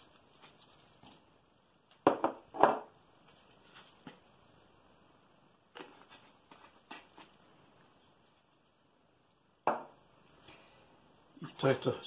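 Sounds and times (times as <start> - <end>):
kitchen items knocking on countertop: 2.0 - 2.9, 9.6 - 9.9.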